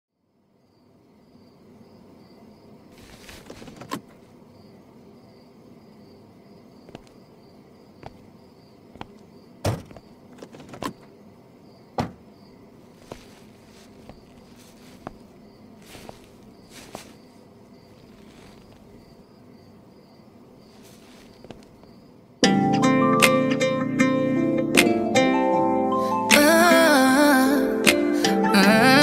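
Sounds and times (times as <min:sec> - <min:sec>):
insect chirring: 0:00.6 - 0:22.4.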